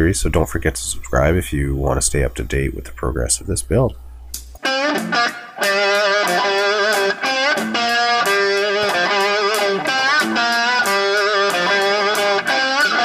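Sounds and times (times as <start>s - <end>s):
electric guitar instrumental music: 4.4s - 13.0s.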